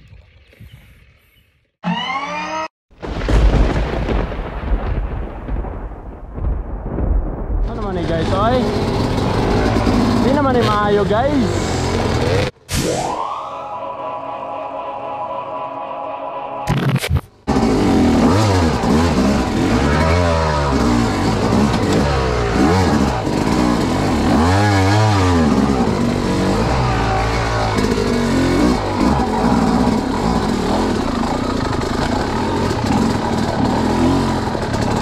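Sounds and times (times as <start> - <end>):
dirt bike engine revving: 8.0 - 12.6, 17.5 - 35.0.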